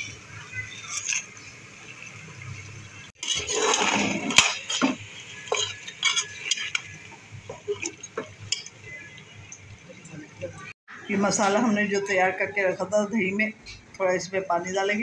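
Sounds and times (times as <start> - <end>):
metal spoon scraping pot: 0.0 - 1.5, 3.2 - 7.0
spoon clinking against pot: 4.4 - 6.9, 7.8 - 8.8.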